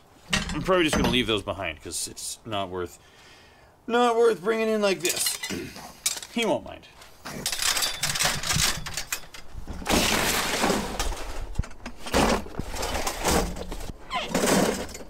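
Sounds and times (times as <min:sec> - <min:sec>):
bucket thudding down: 0:09.7 - 0:11.4.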